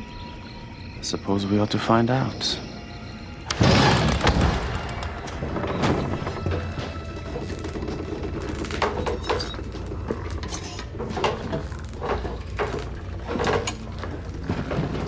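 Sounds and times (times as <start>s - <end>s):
wooden timbers creaking: 3.4s - 15.0s.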